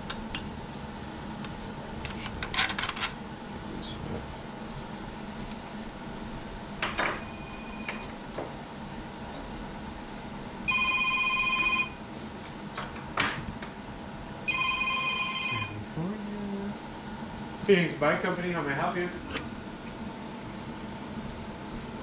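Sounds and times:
low steady hum: 0.0 - 22.0
electronic telephone ringing: 10.7 - 12.0, 14.5 - 15.8.

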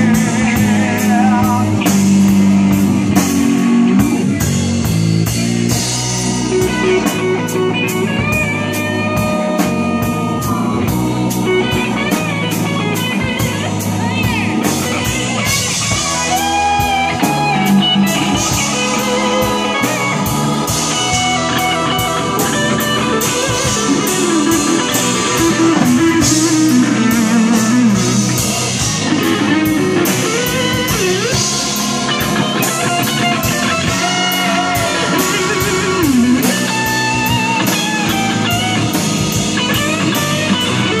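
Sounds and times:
drum kit beat: 0.0 - 41.0
electric bass: 0.0 - 41.0
electric guitar bending notes: 0.0 - 41.0
keyboards: 0.0 - 41.0.

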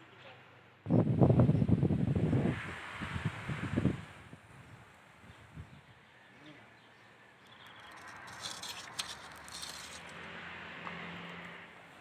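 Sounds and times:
wind hiss: 0.9 - 6.0
rustling vegetation: 7.4 - 11.3.

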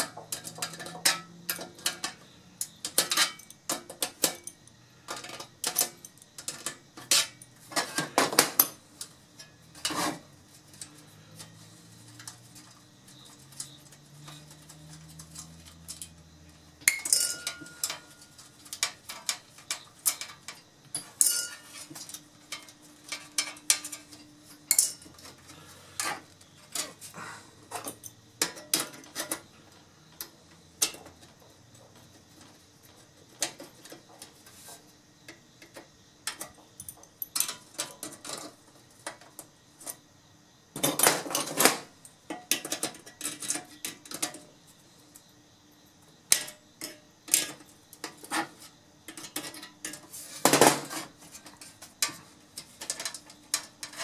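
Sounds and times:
tools clinking on metal: 0.0 - 10.1, 16.8 - 25.4, 36.3 - 38.5.

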